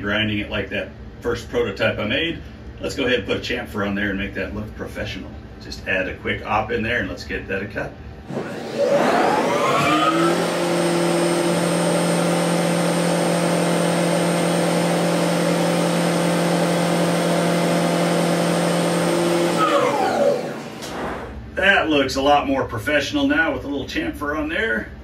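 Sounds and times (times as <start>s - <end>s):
coolant spraying: 8.3s - 21.3s
tool cutting metal: 8.3s - 21.3s
mill spindle whine: 8.3s - 21.5s.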